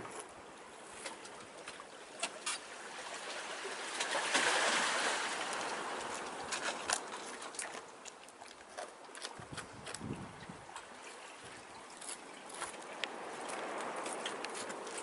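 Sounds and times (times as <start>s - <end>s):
seawater lapping on rocky shore: 0.0s - 15.0s
small splashes and drips: 1.0s - 15.0s
wave washing in: 2.9s - 6.5s.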